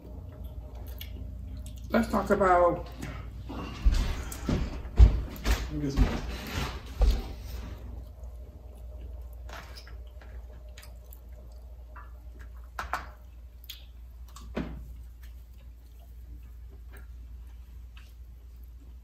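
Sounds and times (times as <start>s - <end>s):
chewing smacks: 0.0s - 2.0s, 7.9s - 19.0s
low steady hum: 0.0s - 19.0s.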